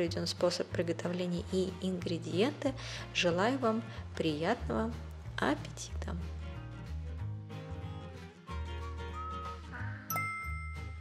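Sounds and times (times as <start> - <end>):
background music with bass line: 0.0 - 11.0
bright bell-like chime: 10.1 - 11.0.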